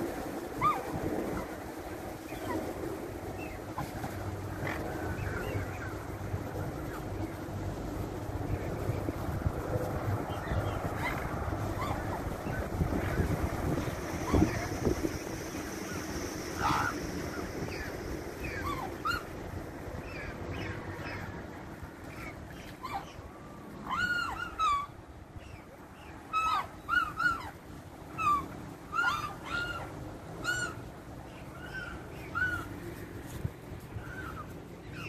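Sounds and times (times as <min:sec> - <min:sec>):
steady low hum: 0:00.0 - 0:35.0
cygnets peeping: 0:03.4 - 0:19.4.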